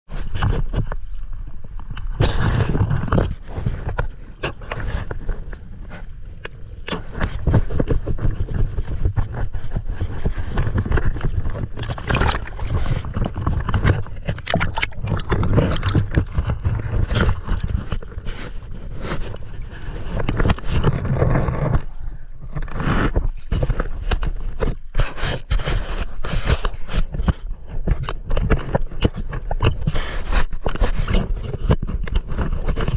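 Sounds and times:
water splashing against camera: 0.1 - 32.9
dense crackling: 1.2 - 22.6.

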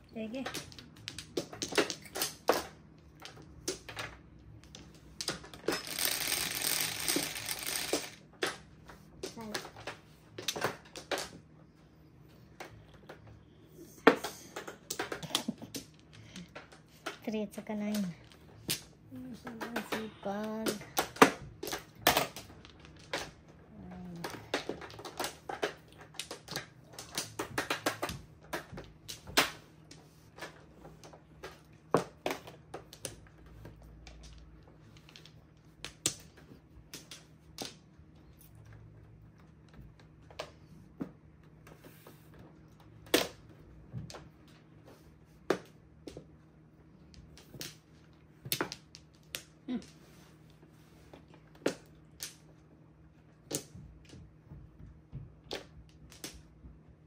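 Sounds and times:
mahjong tiles clacking: 0.0 - 11.6, 12.5 - 40.6.

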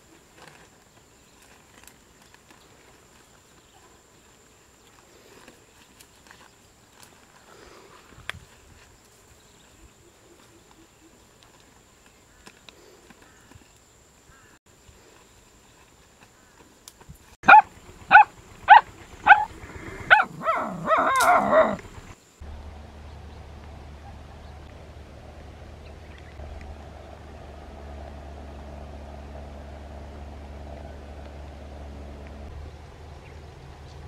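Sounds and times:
steady low hum and hiss: 0.0 - 34.0
dog barking: 17.4 - 21.8
dog yelping: 17.4 - 21.9.

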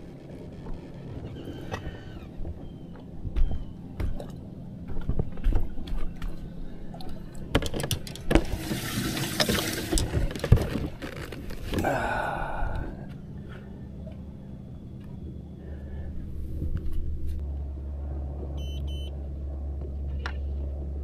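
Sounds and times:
knocks and clicks on boat deck: 0.0 - 6.4, 7.1 - 8.5.

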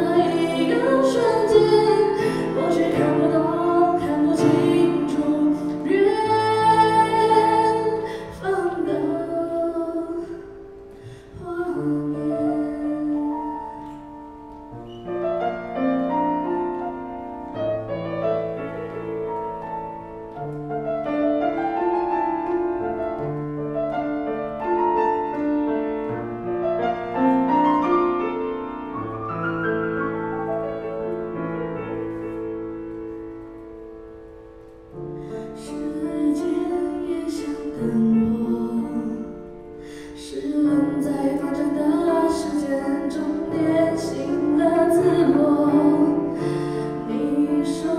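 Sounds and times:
woman singing: 0.0 - 10.6, 11.2 - 14.1, 35.6 - 47.9
grand piano playing chords: 0.0 - 47.9.

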